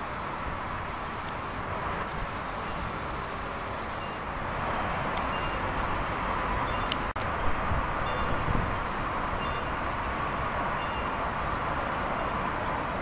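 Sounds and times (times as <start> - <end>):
steady rushing noise: 0.0 - 10.5.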